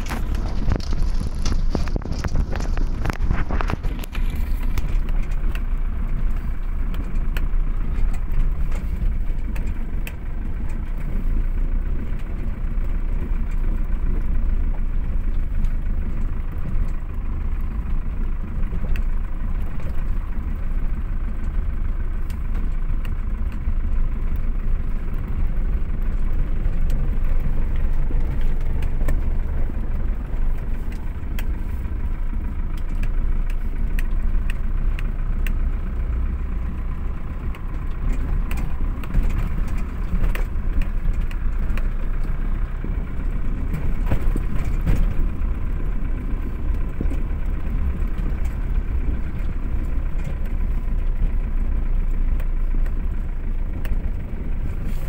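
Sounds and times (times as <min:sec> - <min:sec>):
small clicks and knocks: 0:00.0 - 0:11.3
tyres and engine rumbling on gravel: 0:00.0 - 0:55.0.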